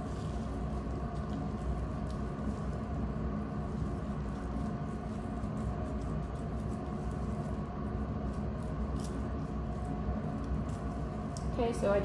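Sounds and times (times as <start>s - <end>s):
steady low hum: 0.0s - 12.0s
scissors snipping tissue: 1.0s - 2.5s, 8.2s - 9.4s.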